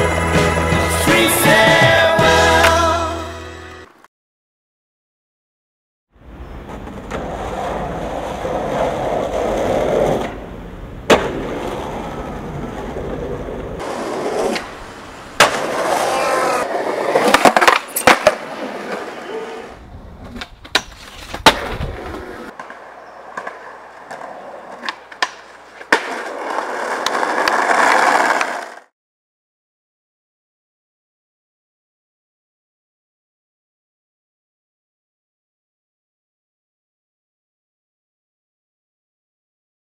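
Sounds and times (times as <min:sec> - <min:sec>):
skateboard wheels rolling: 0:06.2 - 0:28.9
skateboard trucks grinding stone: 0:06.4 - 0:28.9
skateboard clacks: 0:06.6 - 0:19.5, 0:20.3 - 0:28.9.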